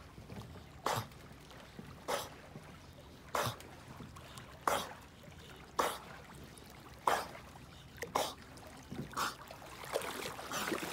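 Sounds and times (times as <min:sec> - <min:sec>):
faint water lapping: 0:00.0 - 0:10.9
dog puffing breaths through nose: 0:00.8 - 0:01.1, 0:02.0 - 0:02.4, 0:03.3 - 0:03.6, 0:04.2 - 0:05.0, 0:05.7 - 0:06.1.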